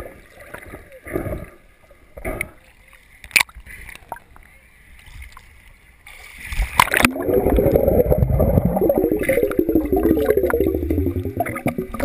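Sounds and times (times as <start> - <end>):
low underwater rumble: 6.6 - 12.0
bubbles crackling: 6.7 - 12.0.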